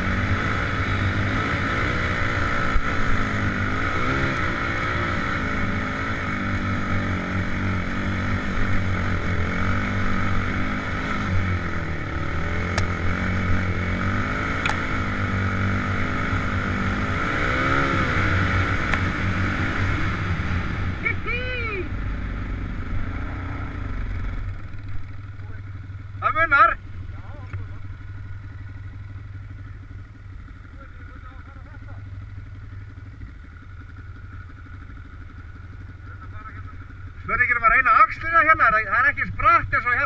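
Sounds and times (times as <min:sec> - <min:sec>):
quad engine revving: 0:00.0 - 0:26.4
sharp clicks: 0:12.7 - 0:13.0, 0:14.6 - 0:14.9, 0:18.8 - 0:19.1.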